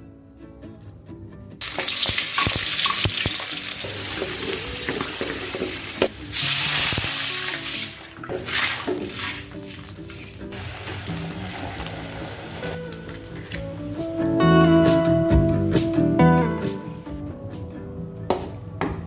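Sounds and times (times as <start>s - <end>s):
guitar background music: 0.0s - 19.0s
food sizzling in hot oil: 1.6s - 13.7s
wooden spatula scraping metal wok: 7.7s - 13.5s.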